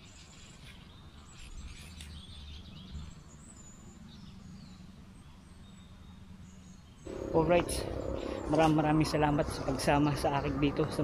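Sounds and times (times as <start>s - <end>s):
low steady rumble: 7.1s - 11.0s.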